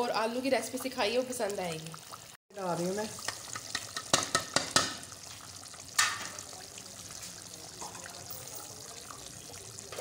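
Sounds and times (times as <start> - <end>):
curry bubbling in a pot: 0.0 - 10.0
spoon knocking against pot: 3.2 - 5.0.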